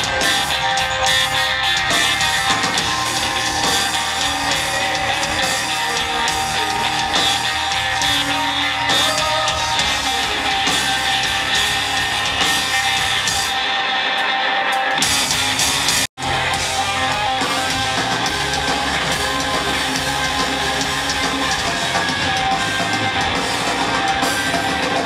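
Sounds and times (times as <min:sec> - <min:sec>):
rock band playing live: 0:00.0 - 0:25.0.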